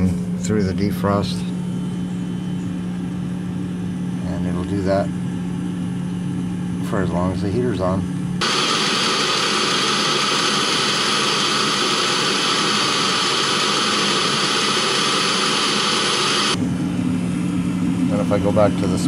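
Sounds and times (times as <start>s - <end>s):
heater jet-like rush: 8.4s - 16.6s.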